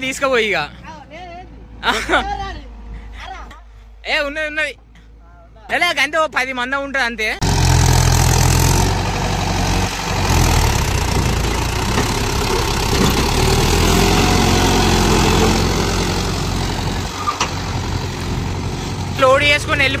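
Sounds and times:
diesel engine idling: 7.4 - 20.0.

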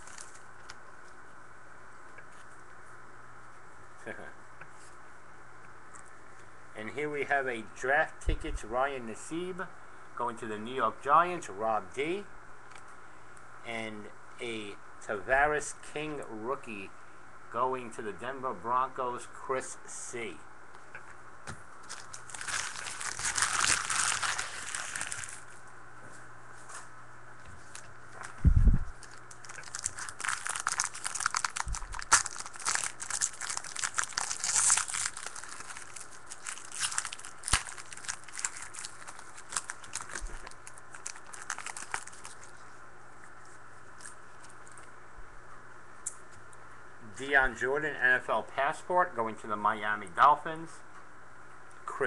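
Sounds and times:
wrapper crinkling: 0.0 - 0.8, 21.8 - 25.5, 27.6 - 42.6
foil pack tearing: 21.9 - 25.4, 29.0 - 42.5.

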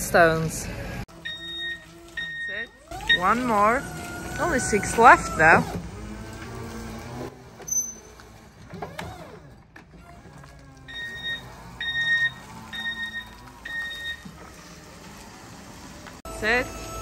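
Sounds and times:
forklift reversing alarm beeping: 1.2 - 3.8, 10.9 - 14.3.

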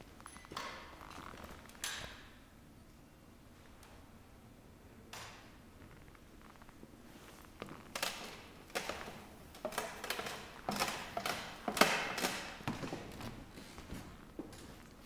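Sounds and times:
footsteps on wooden floor: 12.5 - 15.0.

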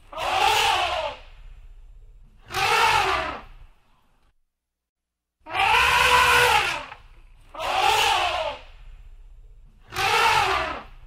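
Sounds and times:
elephant trumpeting: 0.1 - 1.2, 2.4 - 3.5, 5.5 - 8.6, 9.9 - 11.0
low rumble: 1.2 - 2.5, 8.6 - 9.9.

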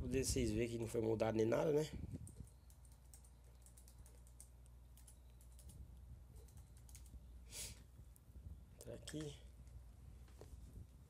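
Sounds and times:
low steady hum: 0.0 - 11.0
keyboard typing: 2.2 - 5.8, 6.4 - 7.2.

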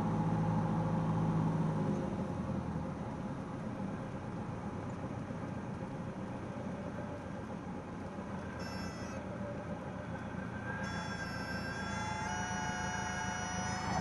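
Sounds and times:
light aircraft engine running: 0.0 - 14.0
high whistling tone: 8.6 - 9.2, 10.5 - 14.0.

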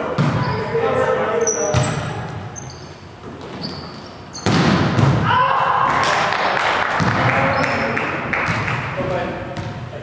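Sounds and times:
volleyball hit: 4.4 - 7.4, 8.4 - 8.9
players shouting and yelling: 5.1 - 9.3.

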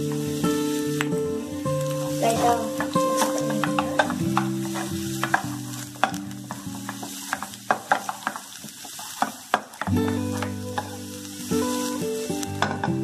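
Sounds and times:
soft background music: 0.0 - 8.5, 9.9 - 13.0
garlic sizzling in hot oil: 0.0 - 13.0
wooden spatula scraping a pan: 2.2 - 9.5.

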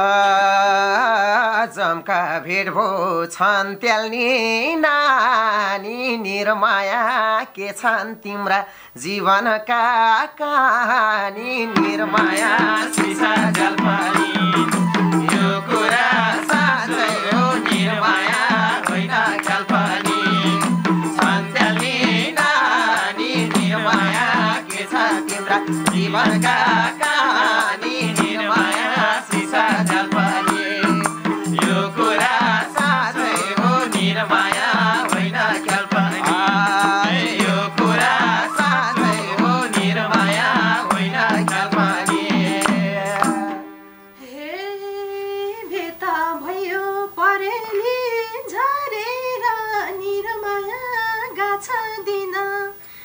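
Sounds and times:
men singing: 0.0 - 43.7
harmonium: 11.7 - 47.8
hand drum: 11.8 - 43.6
woman singing solo: 12.0 - 34.0, 37.7 - 41.7
hand-clapping: 12.3 - 43.6
bamboo flute: 14.0 - 17.8, 19.9 - 21.9, 38.0 - 41.2.

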